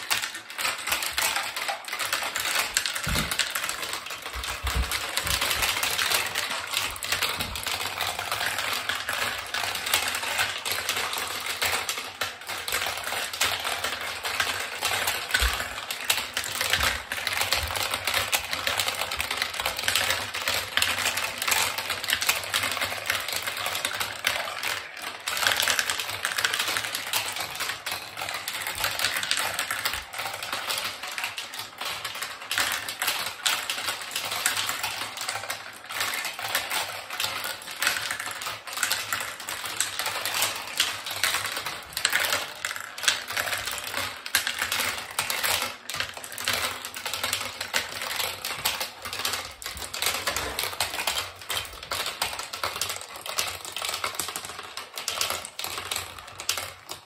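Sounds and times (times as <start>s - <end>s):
marbles rattling down plastic run: 0.0s - 57.0s.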